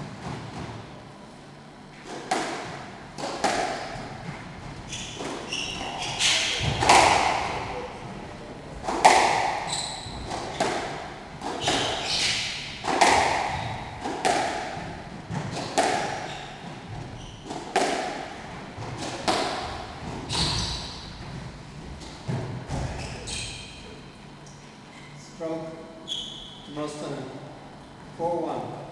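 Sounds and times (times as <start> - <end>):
squash ball slapping walls: 0.0 - 1.0, 2.0 - 23.9
squash ball hitting rackets: 2.0 - 23.7.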